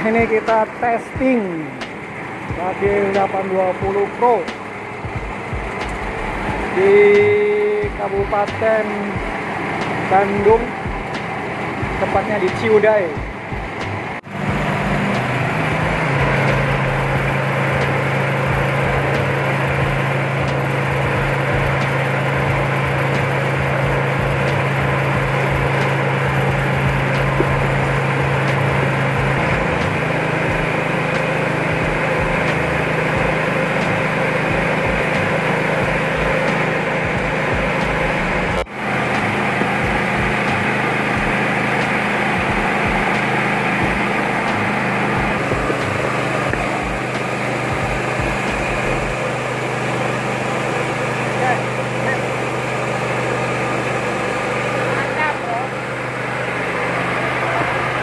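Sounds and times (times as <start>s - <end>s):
engine humming: 0.0s - 58.0s.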